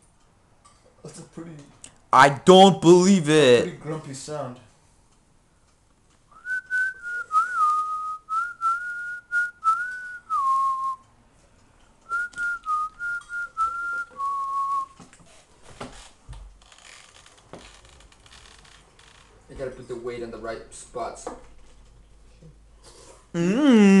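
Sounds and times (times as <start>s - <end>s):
person whistling a tune: 6.4s - 11.0s, 12.1s - 15.0s.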